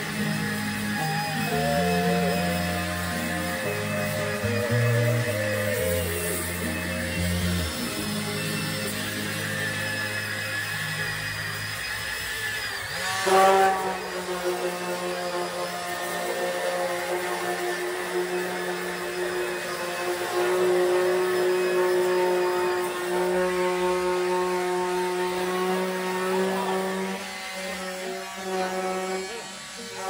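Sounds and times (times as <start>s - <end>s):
orbital sanders grinding metal: 0.0s - 30.0s.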